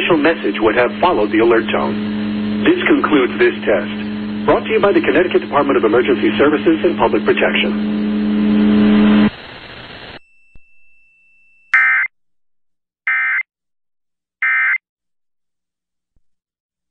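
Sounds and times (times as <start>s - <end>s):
steady low hum: 0.0s - 10.2s.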